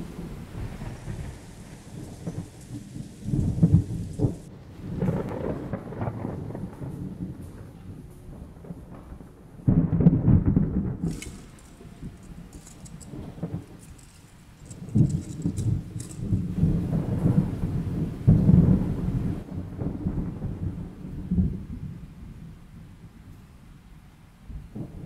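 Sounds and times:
faint crackling patter: 0:00.0 - 0:09.4, 0:10.8 - 0:17.5
deep thunder-like rumbles: 0:00.0 - 0:23.2.

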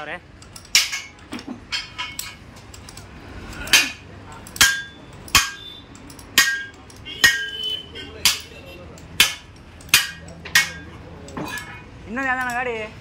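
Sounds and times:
hammer striking steel: 0:00.7 - 0:02.4, 0:03.6 - 0:11.7.

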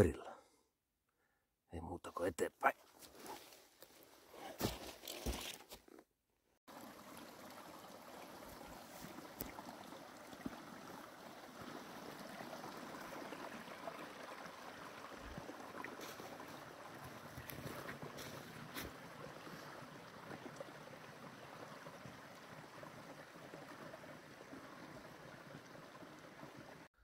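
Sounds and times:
brook running over stones: 0:06.7 - 0:26.9.

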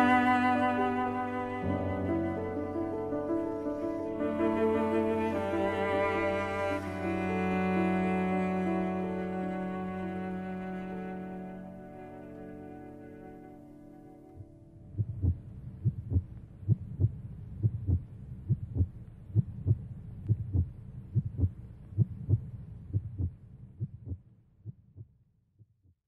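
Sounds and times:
heartbeat thumps: 0:14.9 - 0:26.0.

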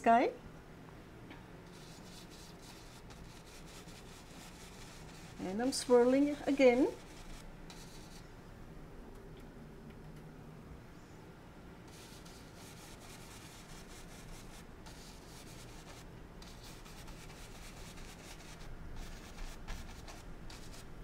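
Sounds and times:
brush scrubbing paint on canvas: 0:01.7 - 0:08.2, 0:11.9 - 0:20.9.

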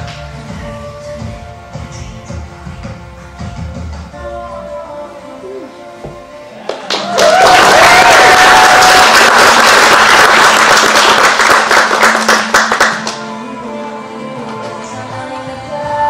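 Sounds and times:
audience applause: 0:06.7 - 0:13.2.

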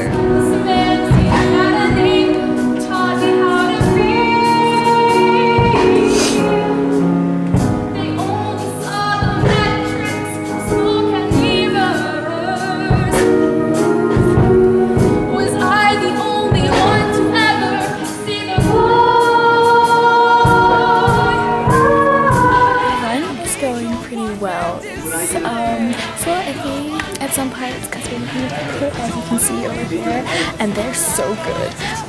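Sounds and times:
woman singing with vibrato: 0:00.0 - 0:07.2, 0:07.9 - 0:32.0
instrumental accompaniment: 0:00.0 - 0:32.0.

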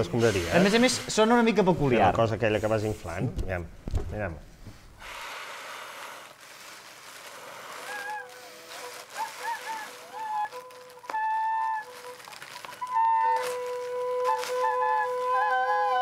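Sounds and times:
bagpipe drone and chanter: 0:07.7 - 0:16.0.

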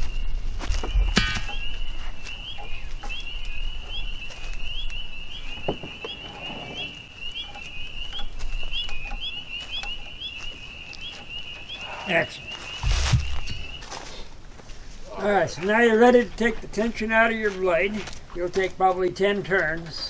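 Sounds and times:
frogs calling: 0:00.8 - 0:14.0.

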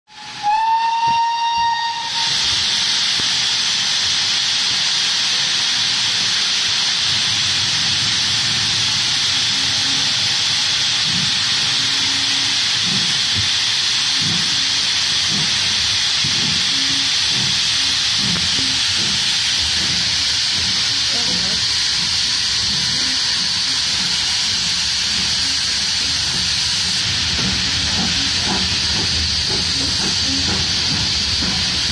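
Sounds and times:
steam locomotive whistle: 0:00.1 - 0:02.9, 0:11.6 - 0:12.9
loud hiss of steam: 0:00.1 - 0:31.9.

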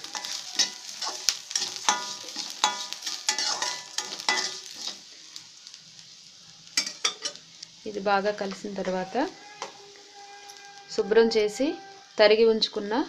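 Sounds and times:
metal spatula scraping a ringing pan: 0:00.0 - 0:05.0
light sizzle: 0:00.0 - 0:13.0.

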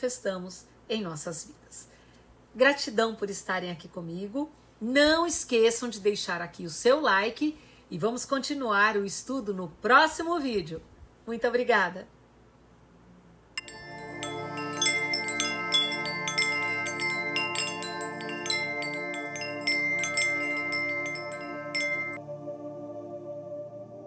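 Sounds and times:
chimes tinkling: 0:13.6 - 0:22.2
soft synth pad: 0:13.6 - 0:24.0.

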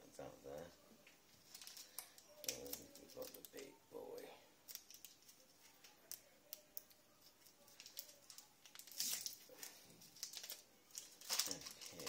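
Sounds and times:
plastic packaging rustling: 0:01.3 - 0:03.7, 0:07.3 - 0:12.0.

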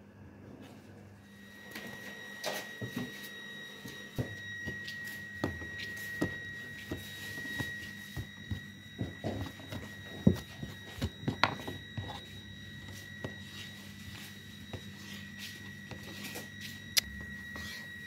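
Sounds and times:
steady high whine: 0:01.2 - 0:18.0.

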